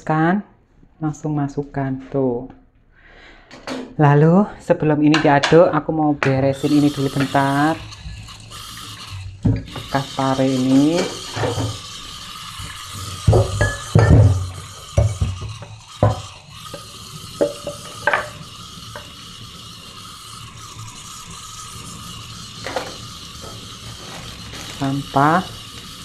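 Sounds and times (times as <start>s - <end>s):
oil sizzling in wok: 6.4s - 26.0s
utensils knocking on cutting board: 13.2s - 16.3s, 17.4s - 18.4s.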